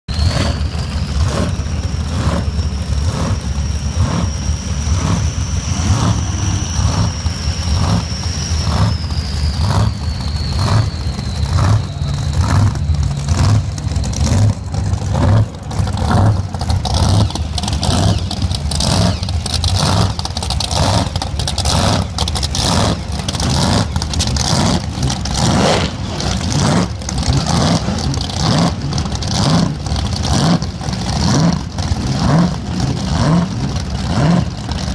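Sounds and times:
race boat engine revving: 0.1s - 34.9s
thin high whine: 1.8s - 14.8s.

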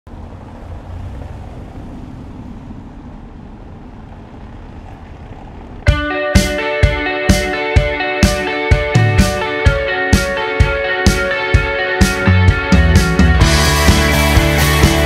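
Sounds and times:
street traffic rumble: 0.0s - 15.0s
rock song with electric guitar: 5.9s - 15.0s.

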